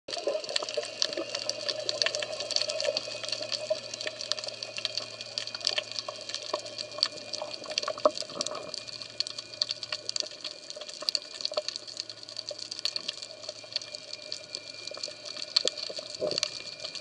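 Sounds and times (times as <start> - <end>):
steady hiss: 0.1 - 17.0
underwater crackle of clicks: 0.1 - 17.0.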